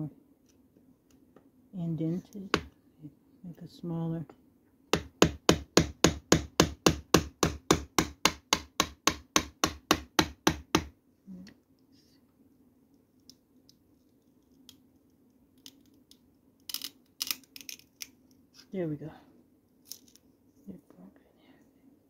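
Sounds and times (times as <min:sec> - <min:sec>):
mallet striking chisel: 0:05.0 - 0:10.9.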